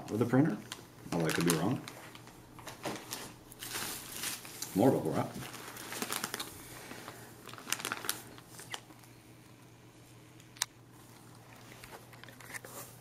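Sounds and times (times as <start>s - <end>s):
bubble wrap and plastic crinkling: 0.0s - 9.1s.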